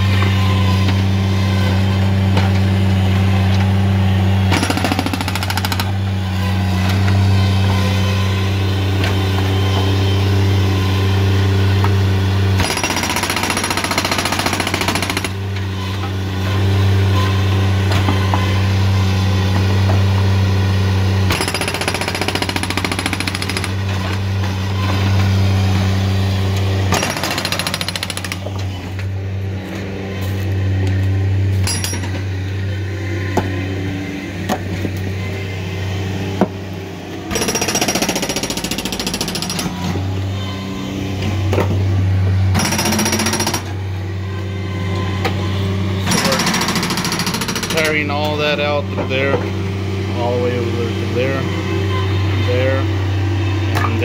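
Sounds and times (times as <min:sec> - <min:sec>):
hydraulic breaker hammering concrete: 0:00.0 - 0:10.0, 0:11.8 - 0:18.8, 0:21.2 - 0:25.8, 0:26.6 - 0:28.6, 0:37.3 - 0:40.0, 0:42.5 - 0:43.8, 0:46.0 - 0:49.6
diesel engine drone: 0:00.0 - 0:54.0.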